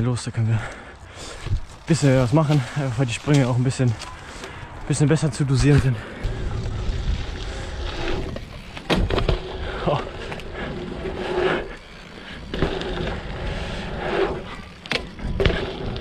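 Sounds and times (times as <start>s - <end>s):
bike tyres humming on dirt: 0.0s - 16.0s
bike clattering over bumps: 5.3s - 16.0s.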